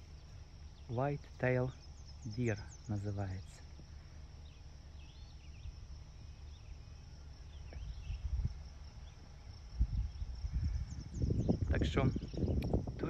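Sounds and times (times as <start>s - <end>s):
faint bird chirps: 0.0s - 13.0s
high insect drone: 0.0s - 13.0s
low rumble: 5.5s - 13.0s.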